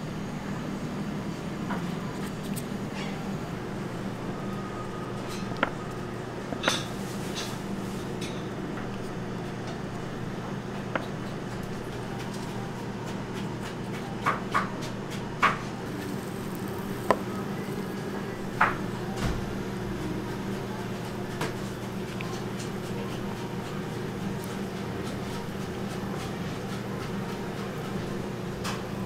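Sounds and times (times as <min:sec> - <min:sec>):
kitchen equipment humming: 0:00.0 - 0:29.0.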